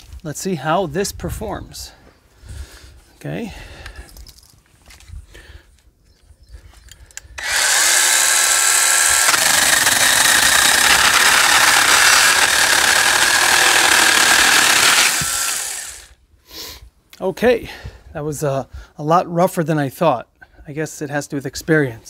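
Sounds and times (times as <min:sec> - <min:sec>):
chainsaw cutting through log: 0:07.4 - 0:16.2
mini chainsaw motor whine: 0:07.4 - 0:16.2.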